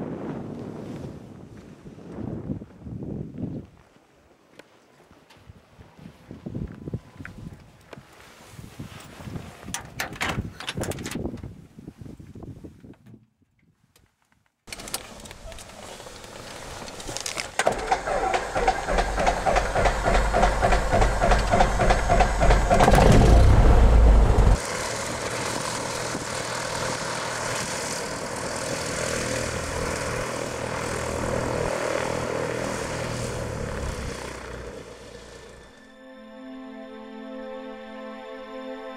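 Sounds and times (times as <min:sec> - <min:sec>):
propeller plane engine running: 0:17.0 - 0:35.9.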